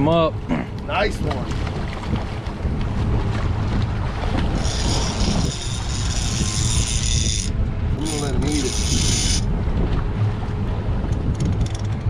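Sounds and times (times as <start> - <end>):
wind rumble on microphone: 0.0 - 12.0
fishing reel drag whining: 4.5 - 9.5.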